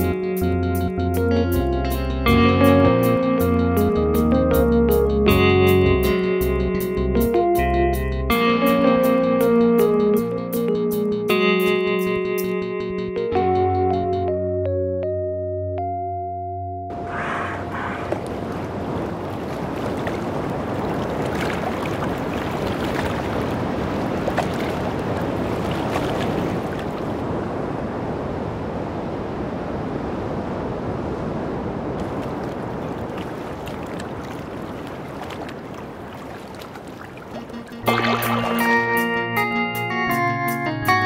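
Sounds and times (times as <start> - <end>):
ocean waves: 16.9 - 39.3.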